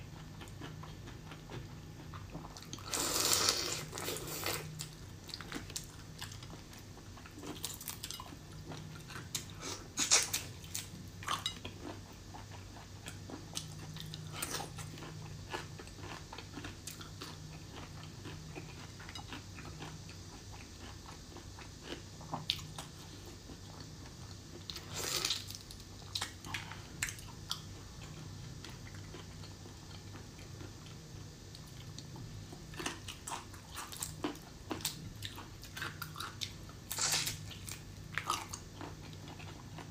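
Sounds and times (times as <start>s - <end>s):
chewing and biting: 7.3s - 21.0s.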